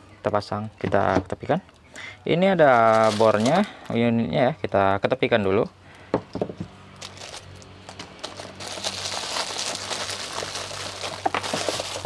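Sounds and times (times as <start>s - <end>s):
plastic wrap crinkling: 2.4s - 4.1s, 7.0s - 12.0s.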